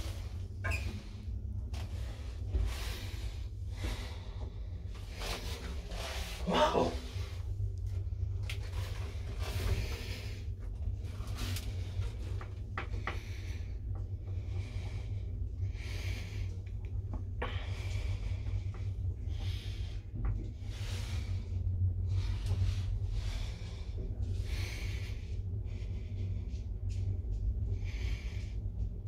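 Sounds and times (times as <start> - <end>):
elevator low rumble: 0.0 - 29.0.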